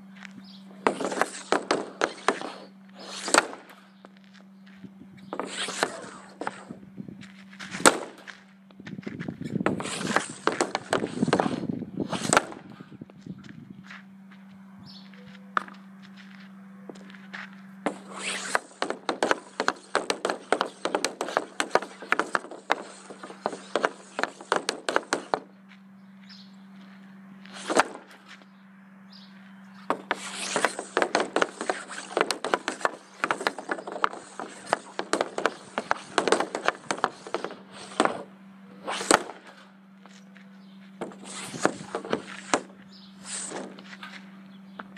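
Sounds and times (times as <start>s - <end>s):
hockey stick tapping puck: 0.8s - 3.6s, 5.3s - 6.6s, 9.7s - 12.6s, 17.9s - 25.5s, 29.9s - 38.2s
hockey stick cracks: 0.8s - 3.8s, 17.9s - 25.4s, 29.9s - 38.2s.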